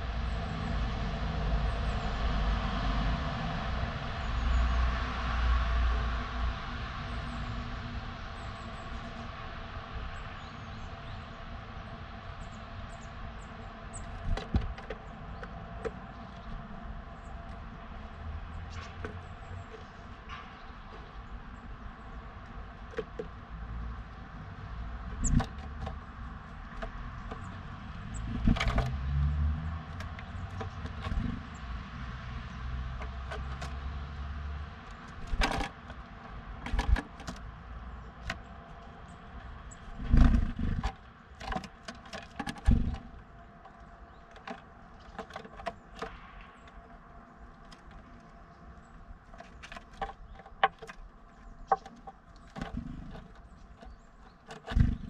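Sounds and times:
bird pecking and scratching wood: 0:11.0 - 0:55.0.

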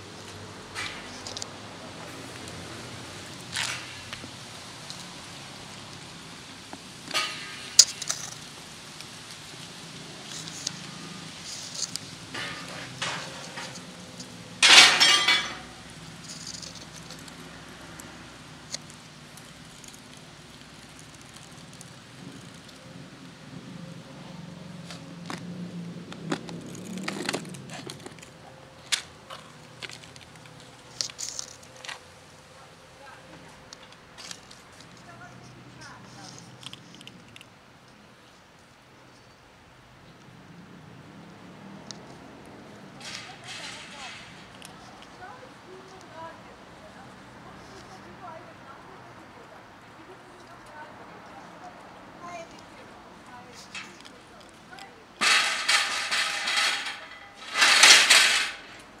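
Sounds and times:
handling noise: 0:00.0 - 0:22.8, 0:52.2 - 0:59.0
background hiss: 0:00.0 - 0:25.2.

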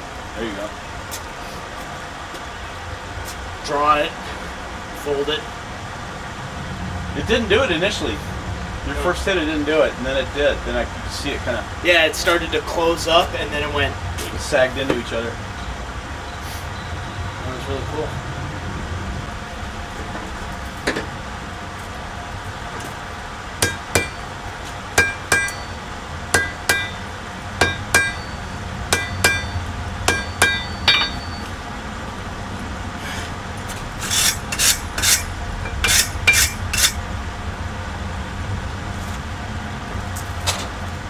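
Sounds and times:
gas forge burner roar: 0:00.0 - 0:41.0
hammer striking steel on anvil: 0:23.6 - 0:24.3, 0:25.0 - 0:31.6, 0:34.1 - 0:37.0.

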